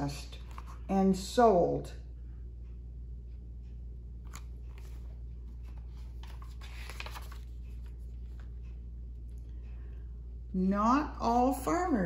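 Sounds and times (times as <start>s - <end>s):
steady low hum: 0.0s - 12.0s
book pages turning: 0.3s - 0.9s, 4.2s - 8.8s.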